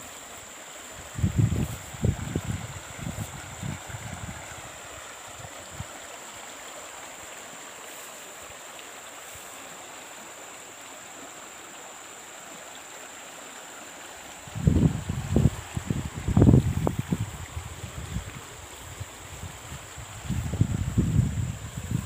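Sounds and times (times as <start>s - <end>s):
stream rushing over logs: 0.0s - 22.0s.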